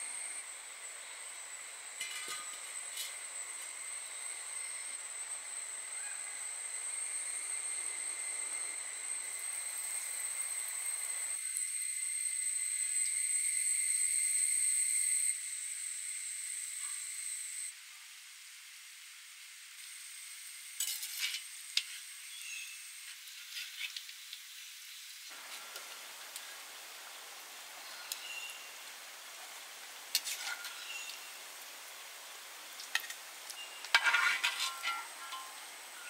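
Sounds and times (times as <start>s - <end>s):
oil sizzling: 22.9s - 36.0s.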